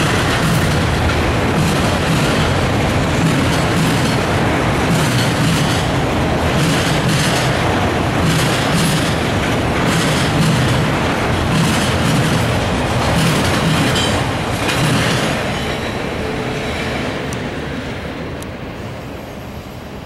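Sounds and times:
freight train wheels rumbling: 0.0 - 20.0.

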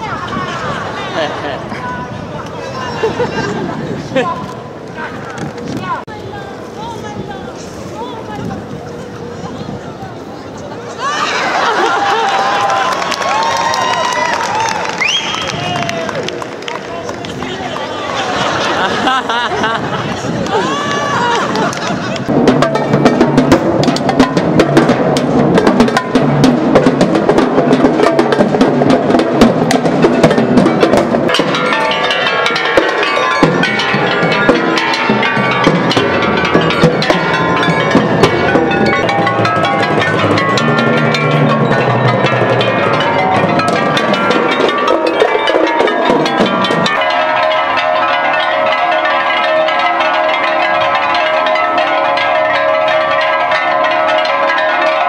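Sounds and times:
fast drumming on timpani: 22.2 - 47.6
marimba notes: 22.3 - 55.0.

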